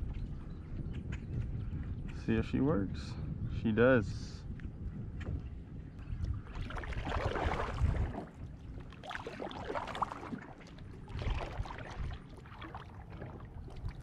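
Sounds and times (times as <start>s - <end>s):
water splashing around a kayak: 5.8s - 14.0s.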